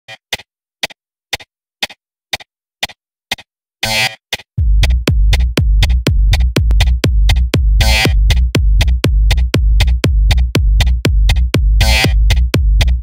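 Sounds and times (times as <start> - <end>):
hi-hat clicks: 4.3 - 13.0
deep bass: 4.6 - 13.0
drum machine kick: 4.6 - 13.0.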